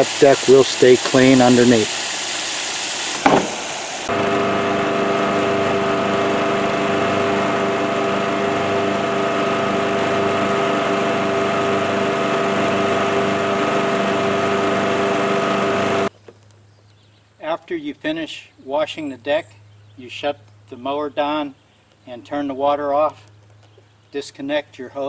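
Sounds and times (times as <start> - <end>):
hiss of water spray: 0.0 - 4.1
riding mower engine hum: 3.1 - 17.2.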